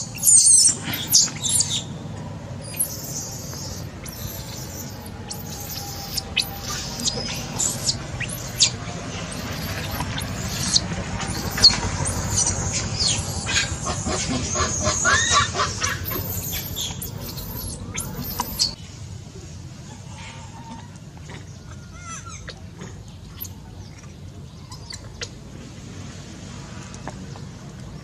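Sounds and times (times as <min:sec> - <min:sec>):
monkeys squealing: 0:00.0 - 0:01.9, 0:02.6 - 0:18.8.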